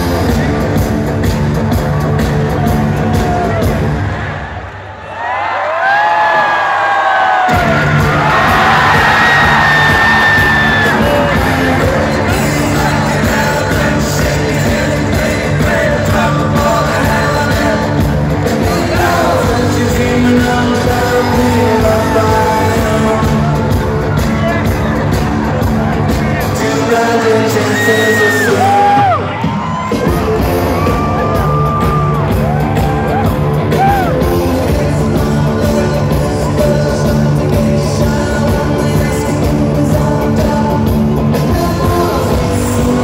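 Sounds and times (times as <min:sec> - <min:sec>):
crowd yelling and whooping: 0:01.2 - 0:35.4
live psychedelic rock band: 0:29.6 - 0:43.0.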